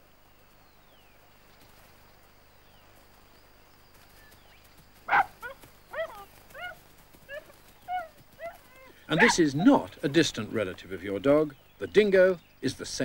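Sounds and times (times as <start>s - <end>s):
faint outdoor hiss: 0.0s - 13.0s
dingoes yelping: 5.1s - 10.3s.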